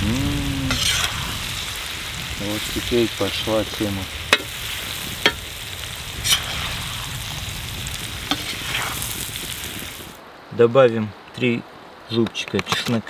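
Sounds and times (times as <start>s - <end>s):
food sizzling in a pan: 0.0s - 10.2s.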